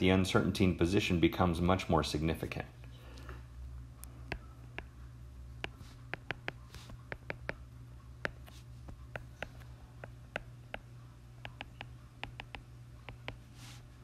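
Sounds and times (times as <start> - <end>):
steady low hum: 0.0 - 14.0
stylus tapping on glass screen: 4.2 - 5.0, 5.6 - 13.4.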